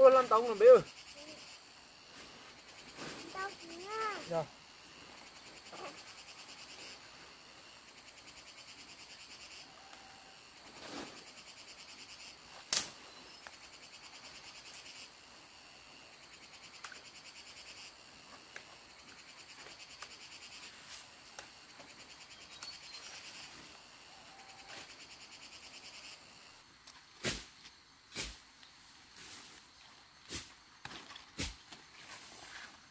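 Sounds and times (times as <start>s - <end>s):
insects trilling: 0.0s - 32.9s
dry branches snapping: 12.7s - 13.0s.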